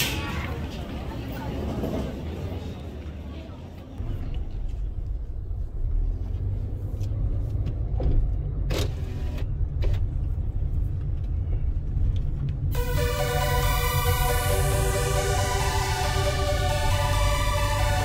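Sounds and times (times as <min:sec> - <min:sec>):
car road and engine rumble: 0:03.7 - 0:18.0
electronic music: 0:12.7 - 0:18.0.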